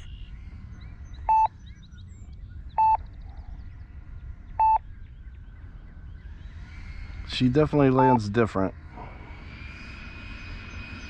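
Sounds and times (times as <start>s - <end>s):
short electronic beeps: 1.3s - 1.5s, 2.8s - 3.0s, 4.6s - 4.8s, 8.0s - 8.2s.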